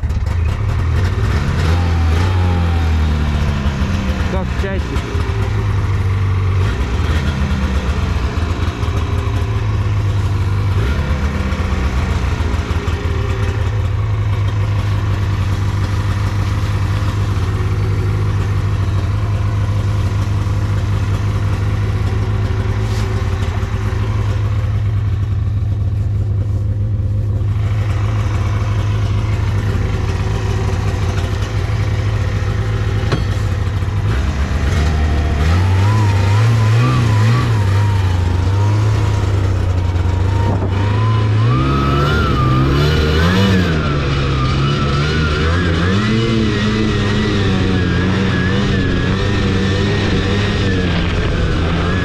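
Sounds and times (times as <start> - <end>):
snowmobile engine running: 0.0 - 52.0.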